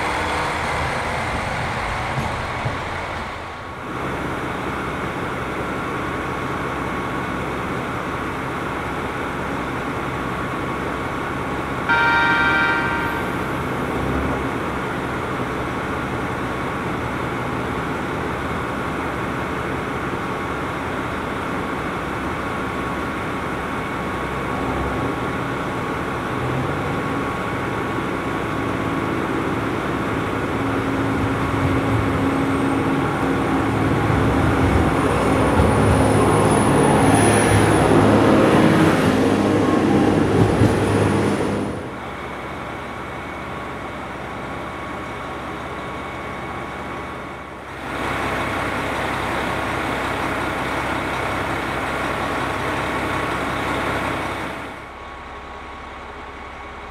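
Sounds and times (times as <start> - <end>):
diesel railcar engine running: 0.0 - 56.9
high whine rising in pitch: 11.9 - 14.5.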